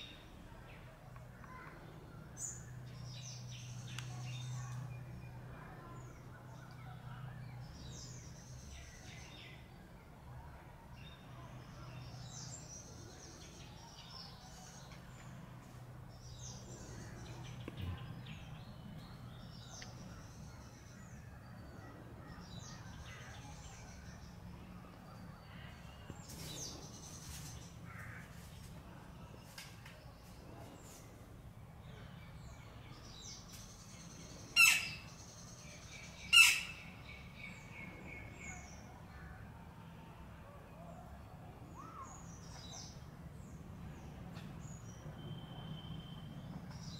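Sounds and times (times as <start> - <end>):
small birds chirping: 0.0 - 10.2, 10.9 - 39.3
low steady hum: 0.0 - 46.8
woodpecker harsh calls: 34.6 - 35.1, 36.2 - 36.9.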